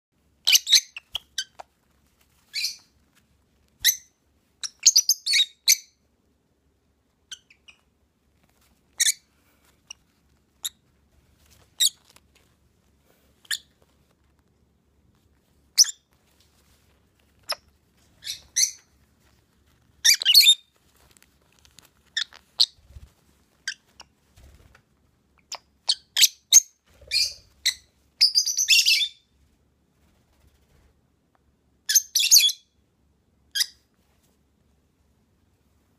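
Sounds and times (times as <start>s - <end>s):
lovebirds chirping: 0.4s - 1.7s, 2.5s - 3.0s, 3.8s - 6.0s, 17.3s - 19.0s, 20.0s - 20.7s, 22.1s - 22.9s.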